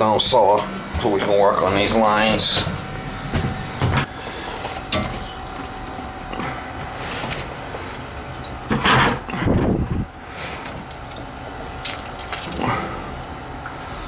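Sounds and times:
footsteps on wooden stairs: 2.5s - 4.1s.

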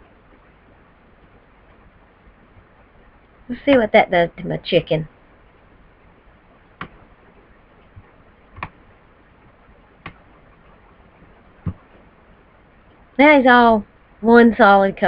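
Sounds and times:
faint room hiss: 0.0s - 15.0s
computer mouse clicking: 6.8s - 7.0s, 7.9s - 8.8s, 10.0s - 10.2s.

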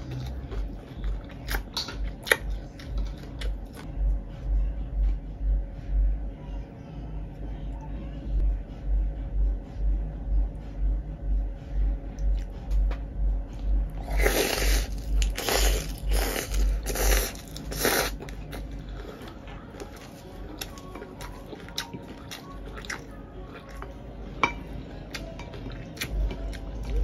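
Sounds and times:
chewing crunchy lettuce: 0.0s - 3.9s, 14.0s - 24.0s.

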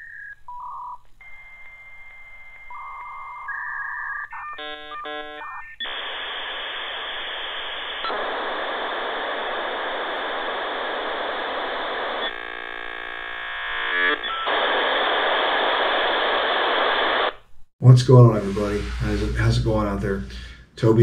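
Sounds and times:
electronic beeps: 0.0s - 7.0s
radio static hiss: 3.4s - 21.0s
buzzing stepped tone: 12.2s - 14.5s.

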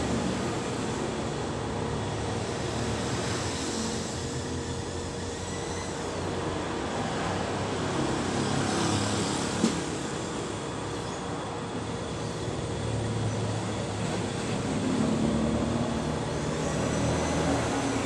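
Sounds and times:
steady background noise: 0.0s - 18.0s.

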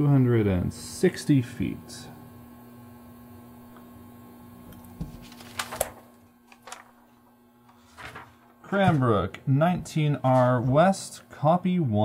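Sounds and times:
steady low hum: 0.0s - 12.0s
paper rustling: 5.0s - 9.2s.

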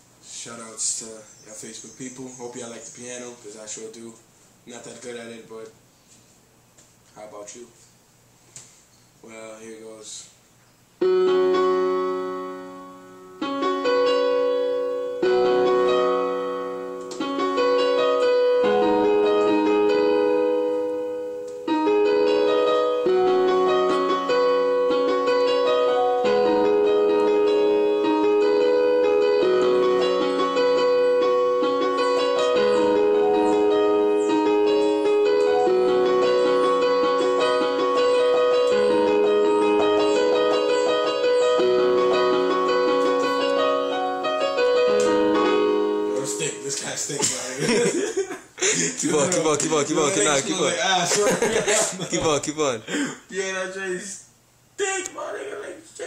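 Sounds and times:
electronic keyboard piano chords: 11.0s - 47.7s.

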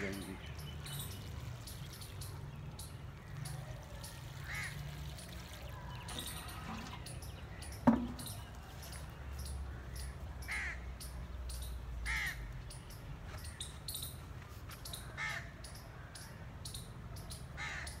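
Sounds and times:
crow cawing: 4.4s - 4.8s, 10.4s - 10.8s, 12.1s - 12.4s, 17.6s - 18.0s.

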